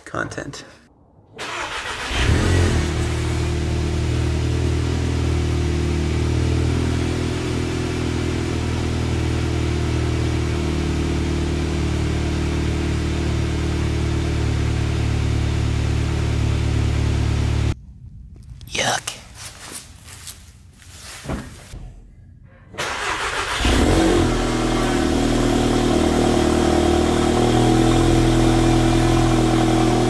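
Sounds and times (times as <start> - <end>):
car starter turning: 1.4 - 3.4, 22.8 - 24.8.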